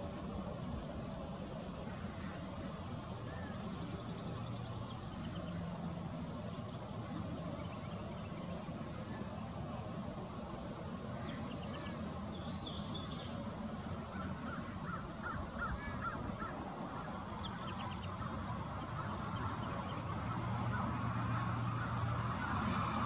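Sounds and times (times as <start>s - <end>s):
distant traffic rumble: 0.0s - 23.0s
birds calling: 11.1s - 22.6s.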